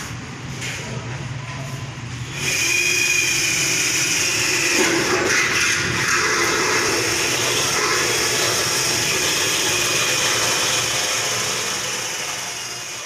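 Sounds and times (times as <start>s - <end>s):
cordless drill driving a screw: 6.3s - 13.0s.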